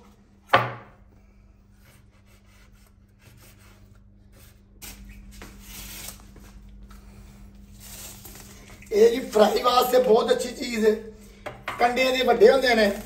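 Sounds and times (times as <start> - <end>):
low steady hum: 0.0 - 13.0
rubbing and scraping of fish: 1.7 - 9.9.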